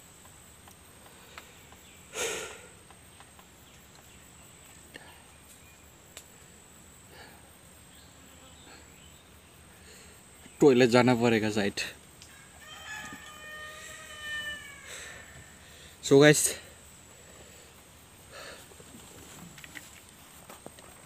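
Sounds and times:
man's sharp breath: 2.1 - 2.8
high-pitched insect drone: 4.1 - 18.8.

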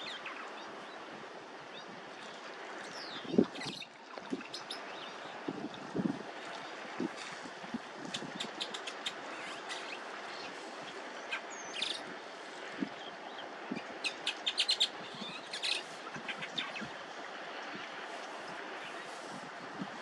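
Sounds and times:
background hiss: 0.0 - 20.0
small birds chirping: 1.7 - 7.2, 8.0 - 17.0.

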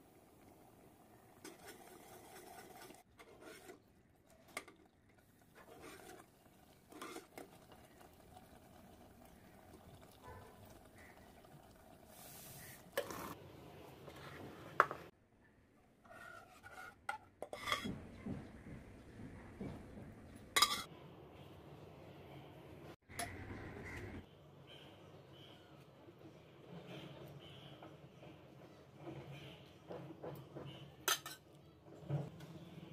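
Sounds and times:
metal spoon scraping pan: 1.4 - 3.8, 16.0 - 17.9.

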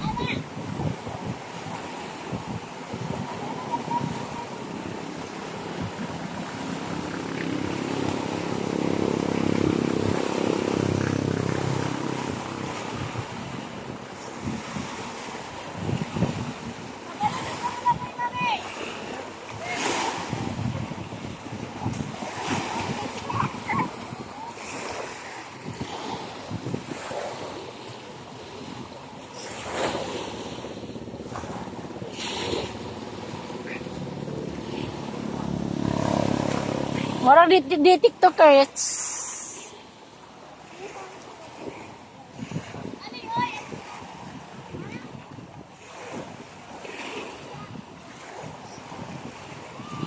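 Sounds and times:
waves washing on shore: 0.0 - 50.0
wind: 0.0 - 50.0
motor engine passing: 3.3 - 15.5, 29.4 - 39.6.

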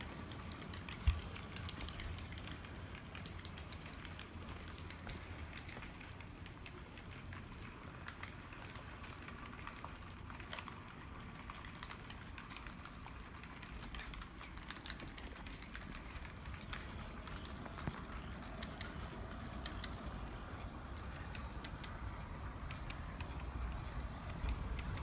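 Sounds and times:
wheels clicking on rails: 0.0 - 25.0.

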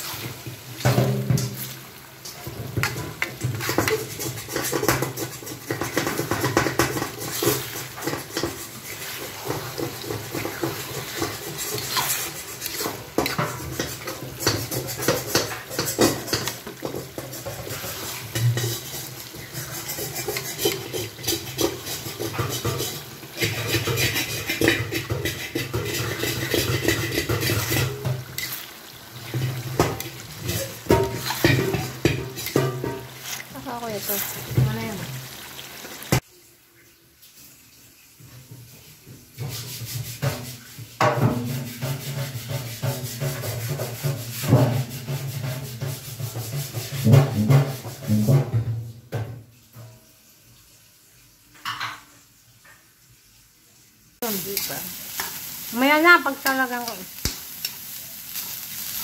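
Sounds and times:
spatula scraping metal pot: 0.0 - 35.5, 39.4 - 48.6.

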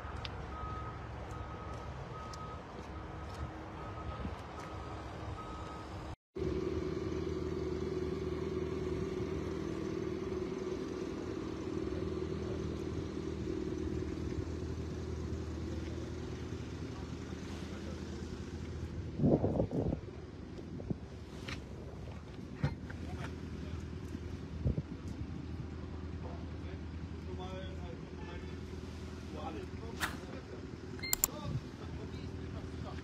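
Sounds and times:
vehicle reversing beeper: 0.0 - 6.2
low engine hum: 0.0 - 33.0.

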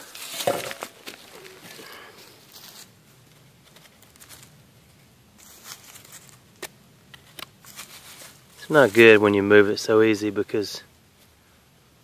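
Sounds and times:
faint rustling: 0.0 - 6.6, 7.2 - 9.8
dry leaves crunching: 0.0 - 6.7, 7.3 - 9.6
digging tool scraping soil: 7.4 - 9.2.

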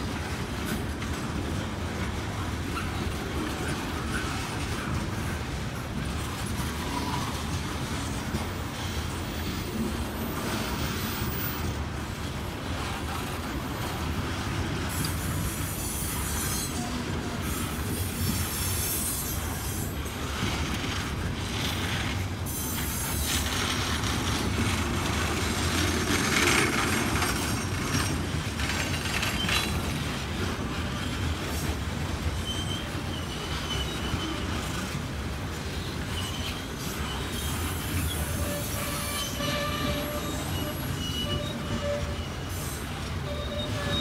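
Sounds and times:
freight train rumbling past: 0.0 - 44.0
high wheel squeals: 14.8 - 20.1, 32.2 - 35.0, 35.7 - 44.0.

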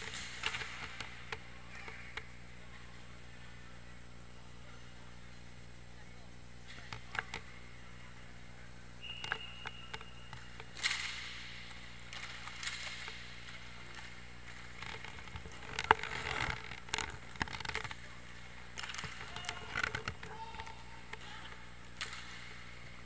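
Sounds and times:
hockey sticks clacking: 0.0 - 2.3, 9.0 - 23.0
skate wheels rolling: 12.1 - 18.2.

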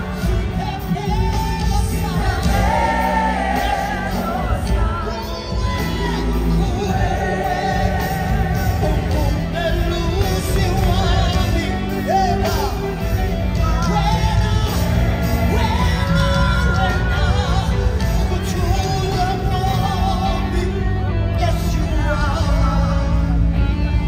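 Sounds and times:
backing singers: 0.0 - 20.5
band playing gospel music: 0.0 - 24.0
lead singer singing: 0.0 - 24.0
crowd shouting: 2.0 - 9.3.

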